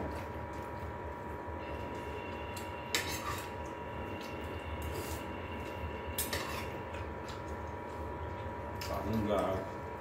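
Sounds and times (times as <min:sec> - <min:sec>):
room hum with high whine: 0:00.0 - 0:10.0.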